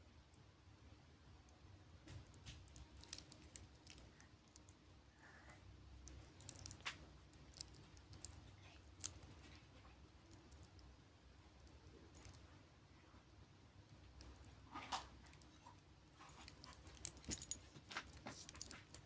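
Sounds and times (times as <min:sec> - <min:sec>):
watch bracelet links clicking: 0:02.6 - 0:04.8, 0:06.0 - 0:09.4, 0:16.4 - 0:19.0.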